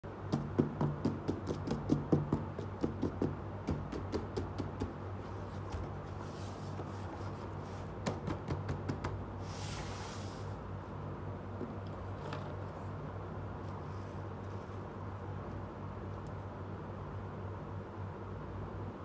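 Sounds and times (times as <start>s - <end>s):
hands tapping cardboard box: 0.2s - 5.0s, 8.0s - 9.2s
cardboard rustling: 5.2s - 8.0s.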